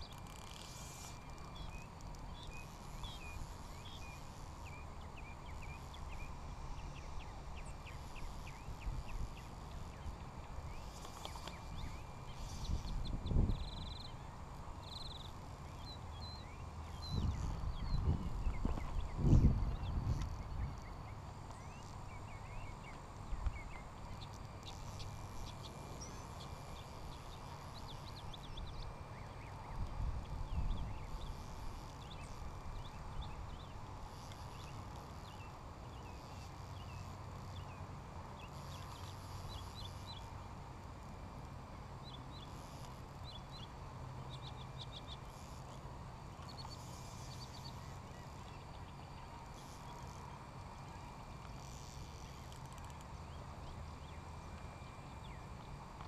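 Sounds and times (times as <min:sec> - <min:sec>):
small birds chirping: 0:00.0 - 0:40.4, 0:41.9 - 0:56.0
wind rumble on microphone: 0:11.5 - 0:14.1, 0:16.8 - 0:21.0, 0:29.6 - 0:33.8.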